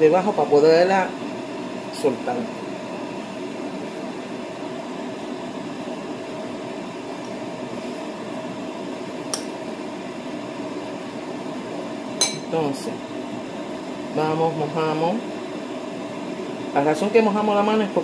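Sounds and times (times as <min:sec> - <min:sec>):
room hum: 0:00.0 - 0:18.0
metal spoon clinking ceramic bowl: 0:12.2 - 0:12.5.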